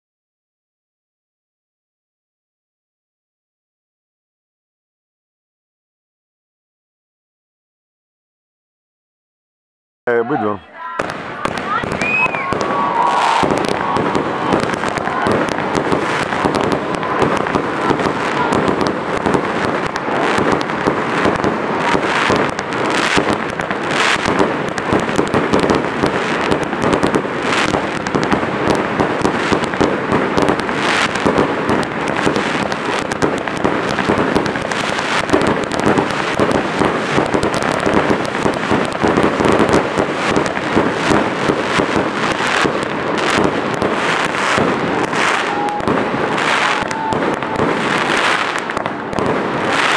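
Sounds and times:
fireworks bangs and crackling: 0:10.9 - 0:49.9.

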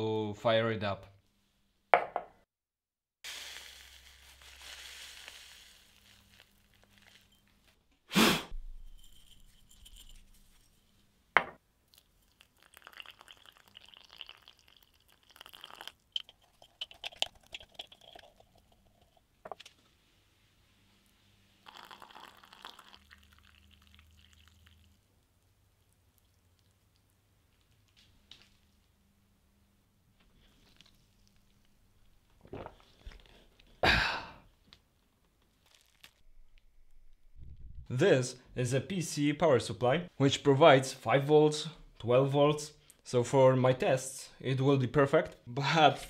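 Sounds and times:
gourd knocking on steel: 0:02.0 - 0:02.3
hot water trickling onto leaves: 0:03.2 - 0:07.8, 0:11.9 - 0:19.0, 0:21.6 - 0:27.1, 0:35.6 - 0:36.2
dry leaves rustling in gourd: 0:03.3 - 0:07.4.

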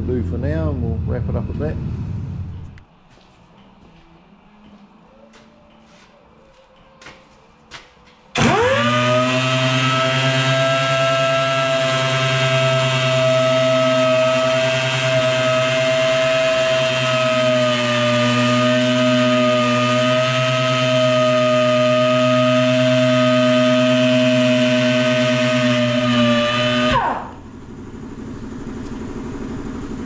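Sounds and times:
power tool motor running: 0:08.4 - 0:27.5.

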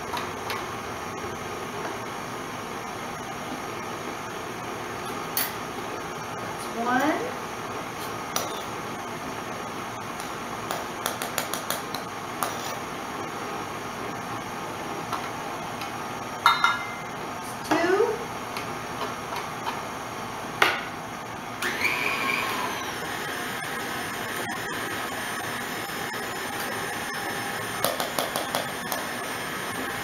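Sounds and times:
stand mixer motor running: 0:21.6 - 0:30.0.

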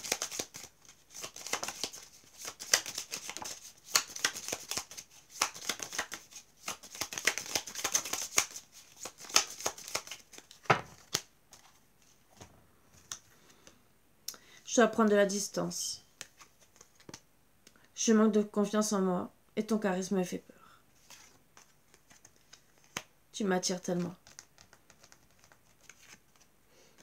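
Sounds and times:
paper cards being shuffled: 0:00.0 - 0:13.2, 0:16.2 - 0:17.2, 0:21.0 - 0:23.1, 0:23.8 - 0:27.0
cards being laid down: 0:10.6 - 0:11.7.

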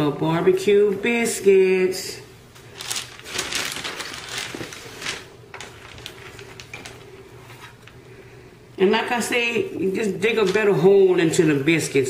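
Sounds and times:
low steady hum: 0:00.0 - 0:12.0
paper and food rustling: 0:02.6 - 0:08.0, 0:10.1 - 0:11.5.

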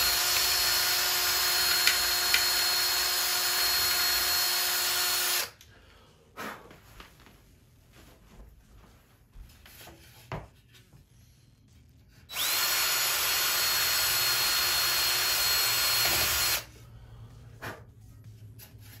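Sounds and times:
cordless drill boring into wood: 0:00.0 - 0:05.6, 0:12.3 - 0:16.7.

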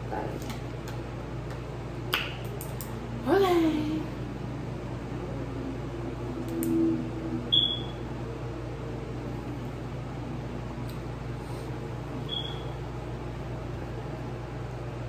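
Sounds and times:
room hum and hiss: 0:00.0 - 0:15.0.

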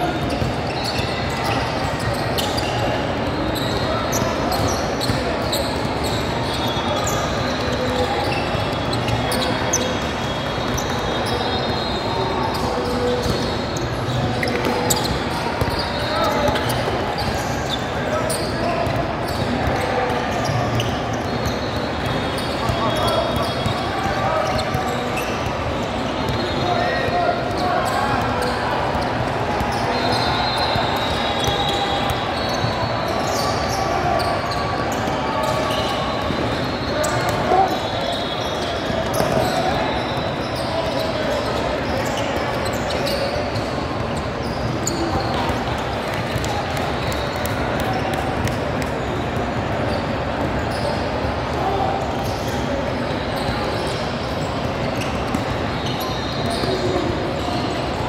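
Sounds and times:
basketball bouncing on court: 0:00.0 - 0:06.7
murmur of voices: 0:00.0 - 0:58.0
sneaker squeaks: 0:00.0 - 0:58.0.

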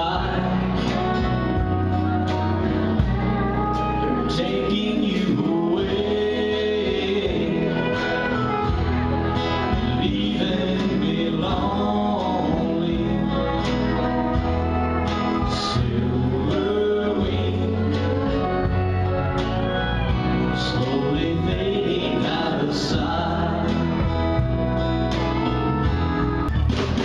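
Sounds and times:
live country band playing: 0:00.0 - 0:27.0
pedal steel guitar: 0:00.0 - 0:27.0
drums beat: 0:23.0 - 0:27.0.

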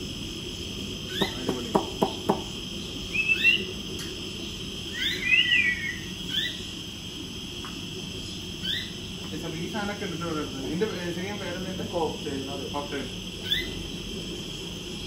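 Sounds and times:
high-pitched insect trill: 0:00.0 - 0:15.0
small birds chirping: 0:00.0 - 0:15.0
warbling bird calls: 0:00.9 - 0:15.0
quick knocks: 0:01.5 - 0:02.5.

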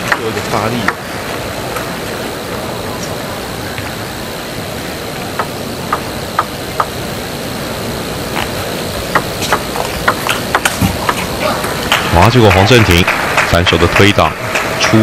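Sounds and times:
crowd murmur: 0:00.0 - 0:15.0
table tennis ball bouncing: 0:05.4 - 0:06.9, 0:09.1 - 0:12.0
ball striking bats and table: 0:08.4 - 0:12.1.

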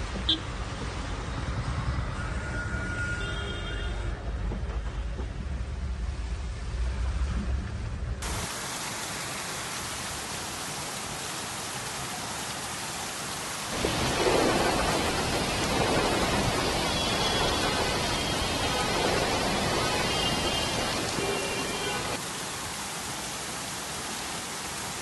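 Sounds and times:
heavy rain hiss: 0:08.2 - 0:25.0.

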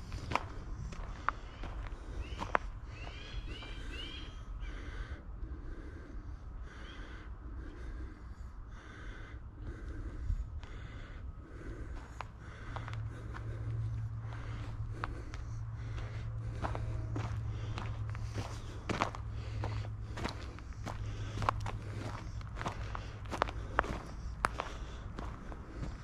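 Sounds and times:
footsteps walking: 0:00.0 - 0:03.8, 0:12.0 - 0:26.0
bird chirping: 0:01.5 - 0:04.8.

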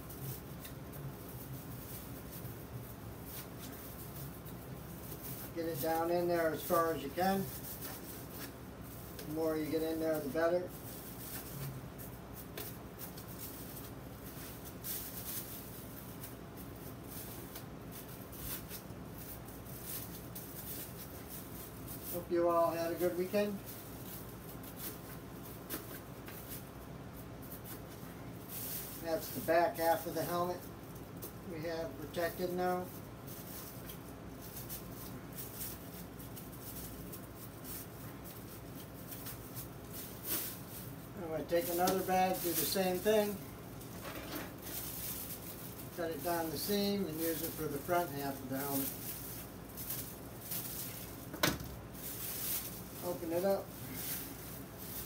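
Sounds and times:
plastic bag crinkling: 0:00.0 - 0:55.0.

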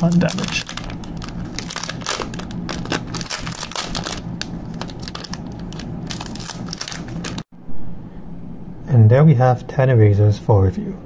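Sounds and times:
packaging crinkling as torn: 0:00.0 - 0:07.4.

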